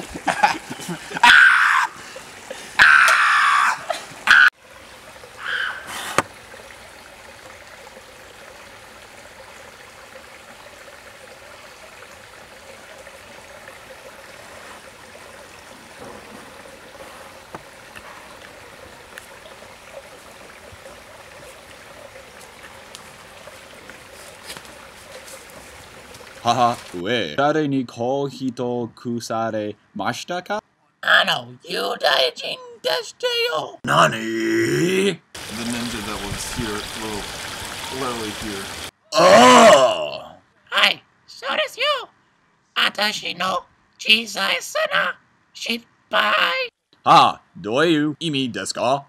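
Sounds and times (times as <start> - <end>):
stream trickling: 0.0 - 27.3, 35.3 - 40.0
person's loud voice: 31.0 - 35.8, 39.1 - 42.1, 42.8 - 47.4.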